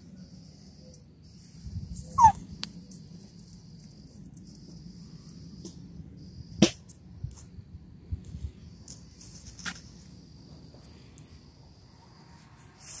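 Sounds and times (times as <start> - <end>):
puppy whining: 2.0 - 2.5.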